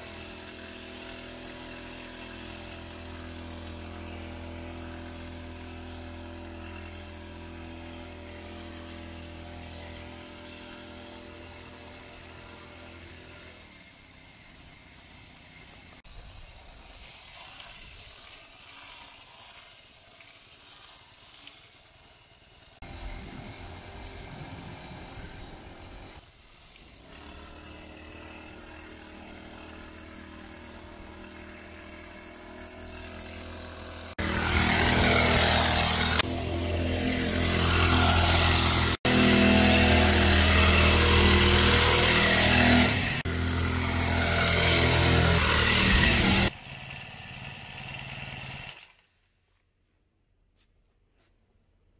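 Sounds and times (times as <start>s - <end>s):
small engine droning: 0.0s - 49.0s
wind and road rush: 22.9s - 26.2s.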